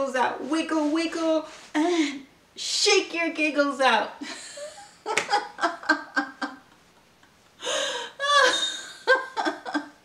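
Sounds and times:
woman laughing: 4.2s - 10.0s.

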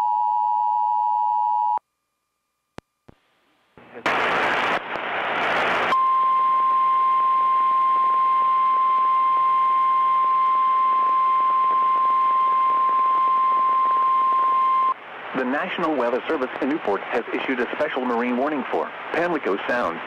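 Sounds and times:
steady attention tone: 5.8s - 17.3s.

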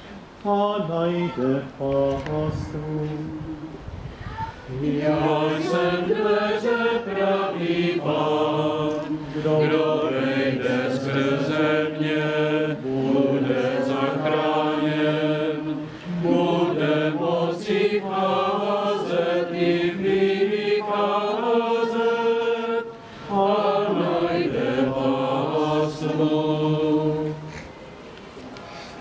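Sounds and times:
voices singing slow chant: 0.0s - 29.0s
singers breathing: 9.1s - 9.6s, 15.7s - 16.2s, 22.9s - 23.4s, 28.6s - 29.0s.

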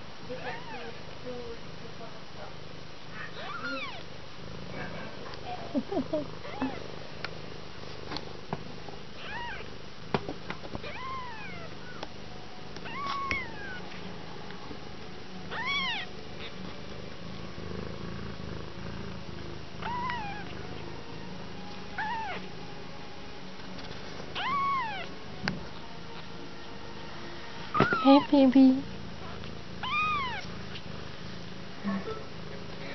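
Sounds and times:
kitten mewing: 3.2s - 4.0s, 5.8s - 6.8s, 9.2s - 9.6s, 15.5s - 16.5s, 19.8s - 20.5s, 22.0s - 22.5s, 24.4s - 25.1s, 29.8s - 30.8s.

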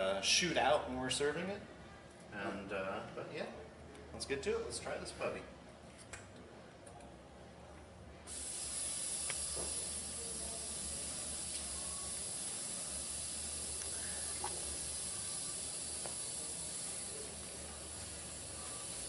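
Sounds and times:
gas hissing from valve: 8.3s - 19.0s.

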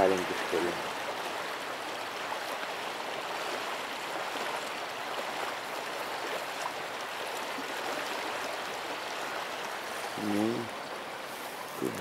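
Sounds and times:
river rushing over stones: 0.0s - 12.0s.

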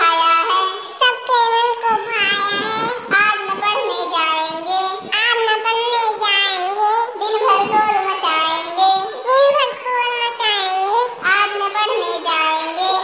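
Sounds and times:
child singing: 0.0s - 13.0s.

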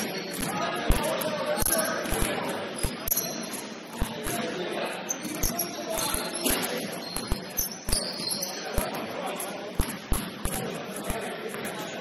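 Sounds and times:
basketball bouncing on gym floor: 0.0s - 4.5s, 5.2s - 9.1s, 9.7s - 11.8s
voices: 0.0s - 12.0s
high squeak: 2.8s - 3.7s, 5.0s - 8.8s.

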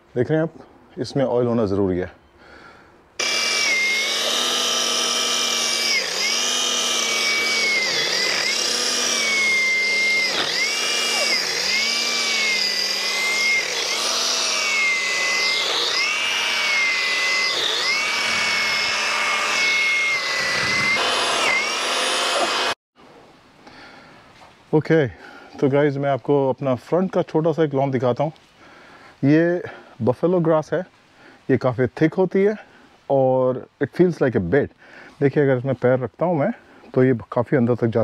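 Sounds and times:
pole chainsaw cutting branches: 3.2s - 22.8s.

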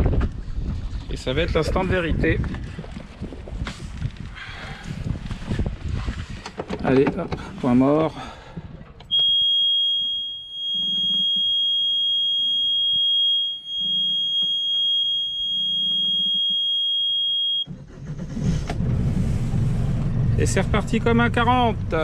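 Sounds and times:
alarm buzzer high tone: 9.1s - 17.7s
diesel engine starting and running: 15.0s - 22.0s.

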